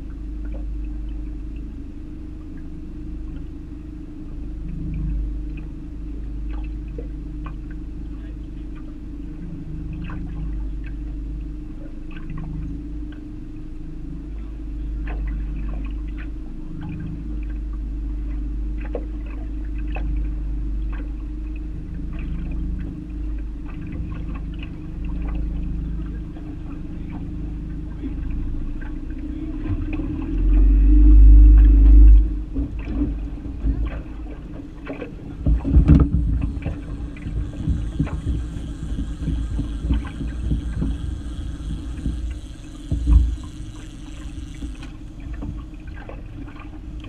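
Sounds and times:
water lapping against boat hull: 0:00.0 - 0:47.0
wind buffeting microphone: 0:29.4 - 0:47.0.

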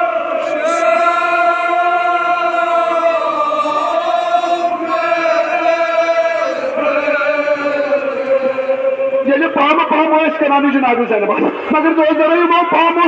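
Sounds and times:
group of voices chanting: 0:00.0 - 0:09.3.

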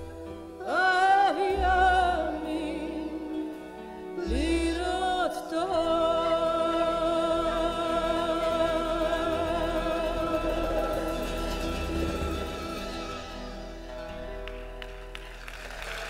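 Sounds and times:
live band music: 0:05.7 - 0:15.9.

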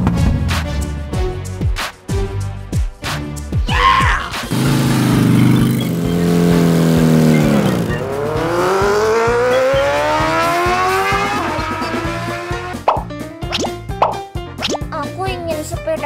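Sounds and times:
motorcycle engine revving: 0:04.4 - 0:12.9.

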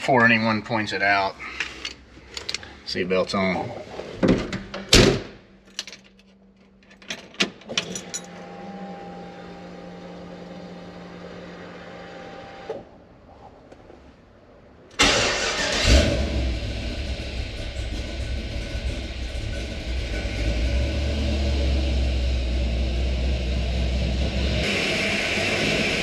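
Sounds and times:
truck engine starting: 0:15.0 - 0:26.0.

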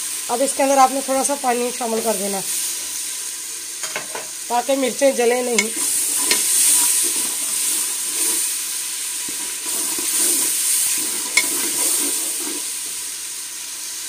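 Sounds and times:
spices sizzling in oil: 0:00.0 - 0:14.0
spatula clicking against pot: 0:05.6 - 0:06.5
spatula scraping pot: 0:05.6 - 0:07.4, 0:09.6 - 0:12.4.

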